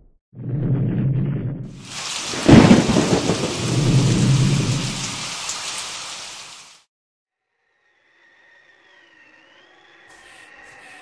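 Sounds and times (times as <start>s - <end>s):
thunder rumbling: 0.4s - 5.4s
loud thunderclap: 0.6s - 5.3s
steady rain hissing: 1.8s - 6.9s.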